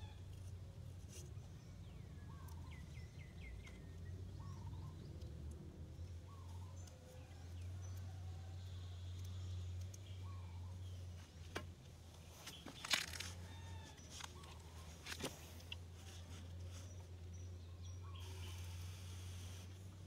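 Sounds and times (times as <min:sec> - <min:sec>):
faint bird chirps: 0:05.9 - 0:11.4, 0:12.3 - 0:20.0.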